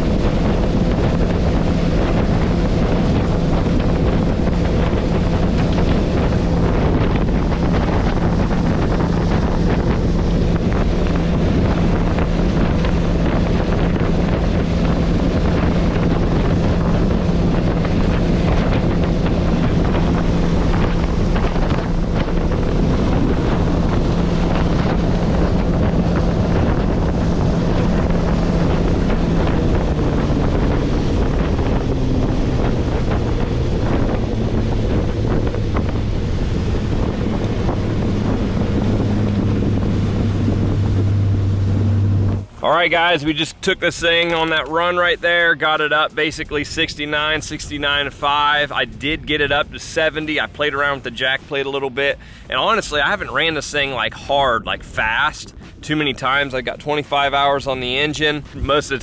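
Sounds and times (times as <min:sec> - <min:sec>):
outboard engine drone: 0:00.0 - 0:59.0
water rushing past hull: 0:00.0 - 0:59.0
wind buffeting microphone: 0:00.0 - 0:59.0.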